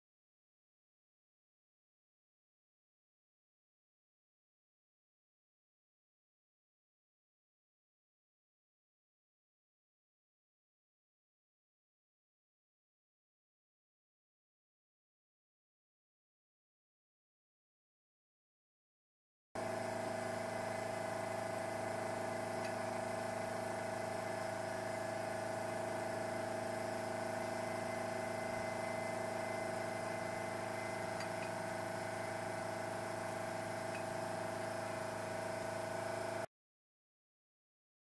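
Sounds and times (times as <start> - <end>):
steady mechanical hum: 19.6 - 36.5.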